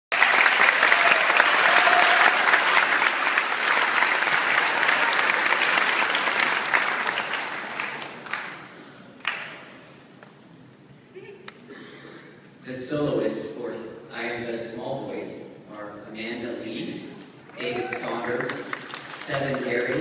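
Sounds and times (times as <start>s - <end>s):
audience applauding: 0.1s - 9.6s, 17.4s - 20.0s.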